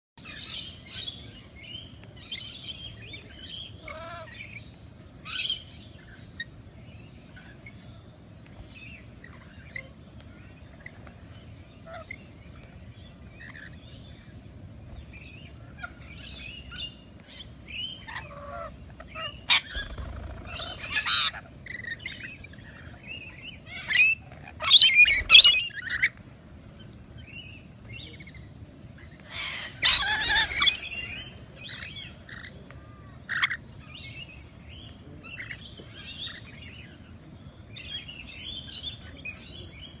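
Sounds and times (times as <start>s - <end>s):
lorikeets chattering and chirping: 0.2s - 40.0s
harsh bird screeching: 29.4s - 30.9s.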